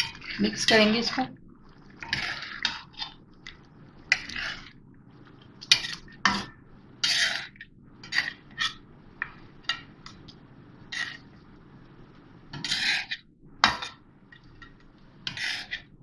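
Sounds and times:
metal spatula scraping wok: 0:02.0 - 0:03.0, 0:04.1 - 0:04.7, 0:07.0 - 0:08.8, 0:10.8 - 0:11.3, 0:12.5 - 0:14.0, 0:15.2 - 0:16.0.

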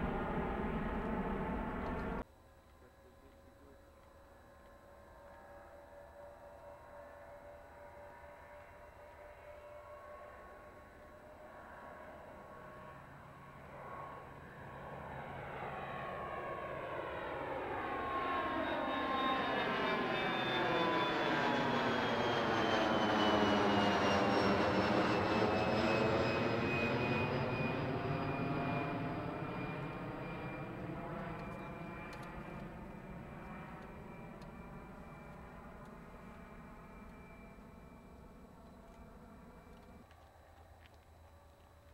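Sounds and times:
jet engines whining: 0:00.0 - 0:02.2, 0:05.0 - 0:41.9.

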